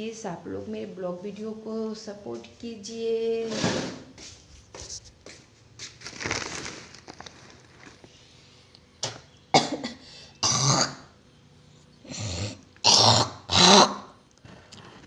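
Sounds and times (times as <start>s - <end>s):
woman coughing: 9.5s - 11.0s.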